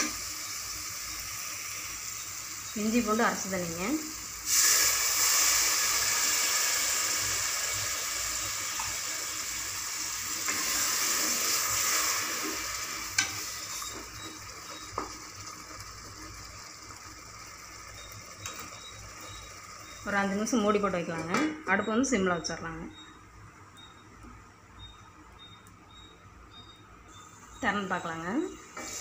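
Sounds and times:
loud sizzle in hot oil: 0.0s - 21.1s, 28.7s - 29.0s.

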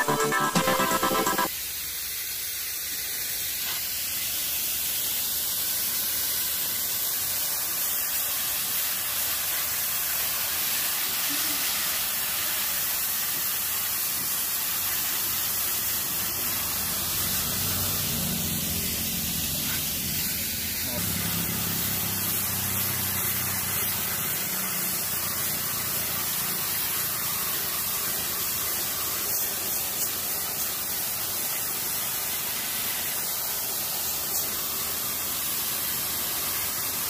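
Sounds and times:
background music: 0.0s - 1.5s
water spraying on metal fins: 1.6s - 37.0s.

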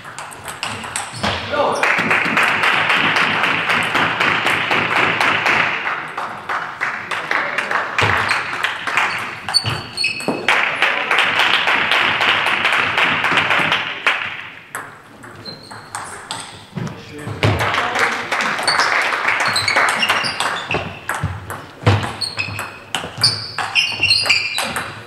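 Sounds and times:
spectators clapping: 1.7s - 9.6s, 10.4s - 14.6s, 17.5s - 20.9s
short high squeaks: 8.2s - 10.3s, 15.4s - 16.7s, 18.6s - 21.2s, 22.0s - 25.0s.

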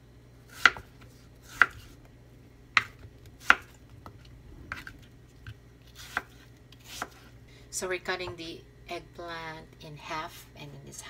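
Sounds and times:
knife chopping on wooden board: 0.5s - 2.0s, 2.7s - 3.8s, 6.0s - 7.3s.

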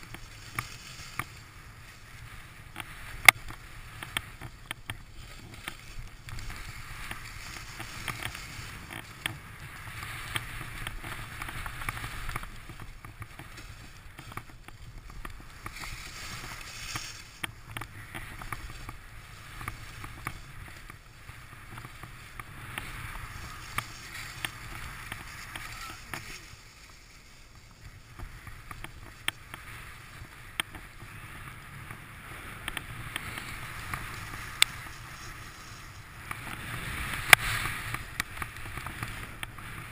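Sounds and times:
skis scraping over snow: 0.0s - 39.9s.

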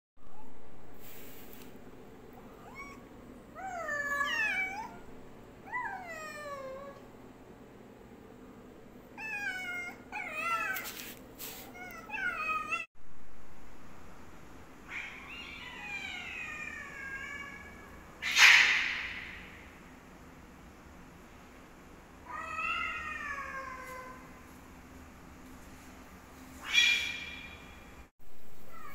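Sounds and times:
cat yowling: 2.4s - 7.0s, 9.2s - 10.9s, 11.8s - 12.9s, 14.9s - 17.8s
cat meowing: 3.6s - 5.0s
cat hissing: 18.2s - 19.6s.

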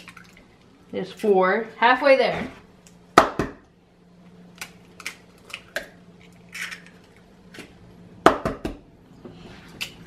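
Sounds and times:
eggs cracking over bowl: 0.0s - 0.9s, 4.5s - 8.4s.

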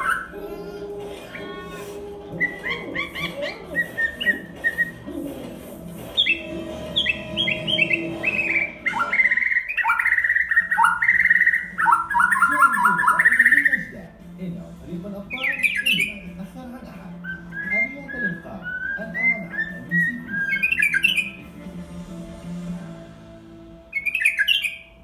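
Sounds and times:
bird singing whistled notes: 6.2s - 13.9s, 15.3s - 16.3s, 17.2s - 21.5s, 23.9s - 25.0s.

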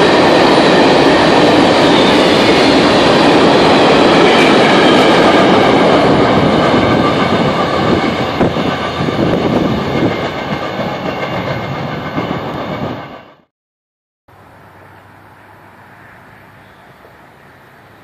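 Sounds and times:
train cars clattering on rails: 0.0s - 13.0s.

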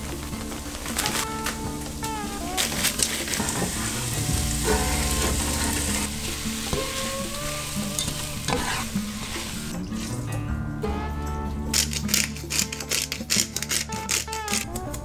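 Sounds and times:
vegetables sizzling in a pot: 0.0s - 10.2s
utensil scraping pan: 0.9s - 10.3s.

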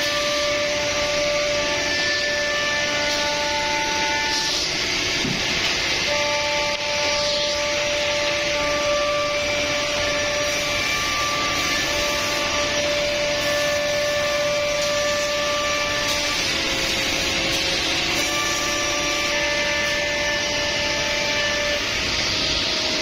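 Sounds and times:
cnc router hiss: 0.0s - 23.0s
spindle whining: 0.0s - 23.0s.

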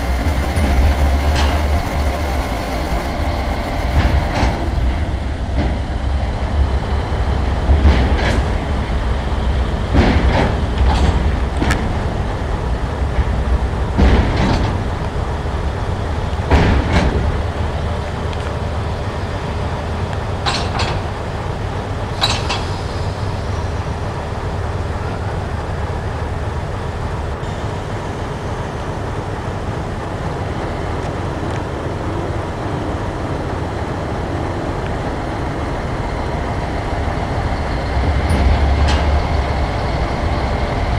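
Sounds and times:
sharp clicks and clunks: 9.9s - 12.0s, 13.1s - 15.2s, 16.3s - 17.5s, 20.1s - 21.2s, 22.1s - 22.8s, 38.1s - 40.2s.

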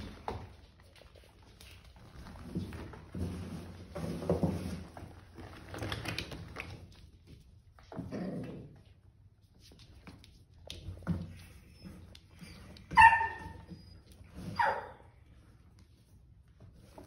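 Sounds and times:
puppies growling and whimpering: 7.9s - 8.9s.

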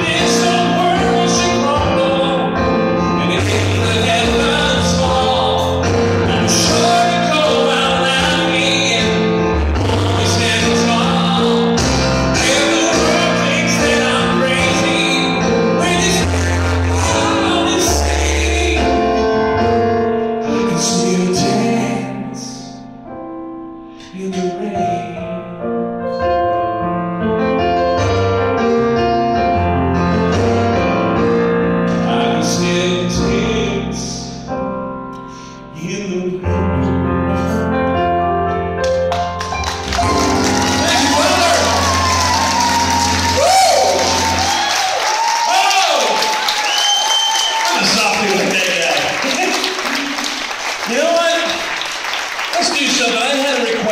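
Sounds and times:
man singing a pop ballad: 0.0s - 19.4s, 20.4s - 22.8s, 24.0s - 25.6s, 31.9s - 34.5s, 35.7s - 37.1s
electronic keyboard: 36.5s - 45.3s.

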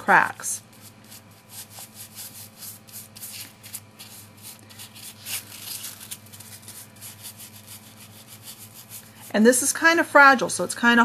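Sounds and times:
low steady hum: 0.0s - 11.0s
paintbrush scratchy strokes: 0.7s - 9.3s.

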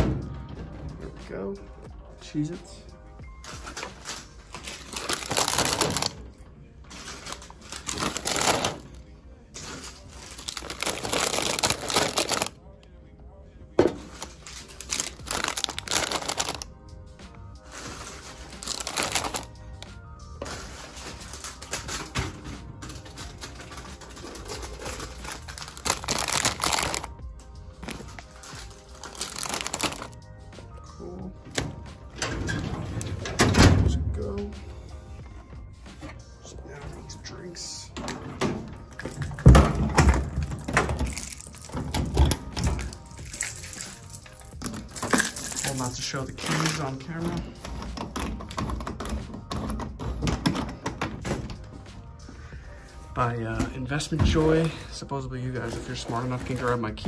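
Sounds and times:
background music: 0.0s - 57.0s
plastic snack bags crinkling: 3.6s - 6.2s, 6.9s - 9.0s, 9.6s - 12.6s, 14.0s - 16.7s, 17.6s - 19.6s, 22.9s - 27.2s, 27.8s - 30.2s, 40.4s - 47.4s, 55.6s - 57.0s.

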